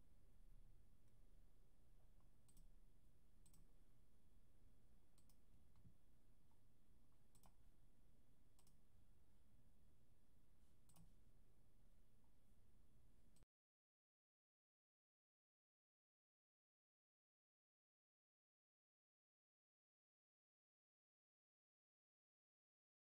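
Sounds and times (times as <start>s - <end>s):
low room hum: 0.0s - 13.4s
computer mouse clicks: 2.2s - 2.7s, 3.4s - 3.8s, 5.2s - 6.0s, 7.1s - 7.7s, 8.5s - 8.8s, 10.8s - 11.2s.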